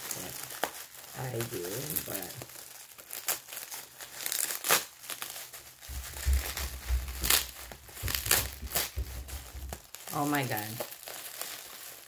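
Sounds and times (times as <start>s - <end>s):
packing material crinkling: 0.0s - 12.0s.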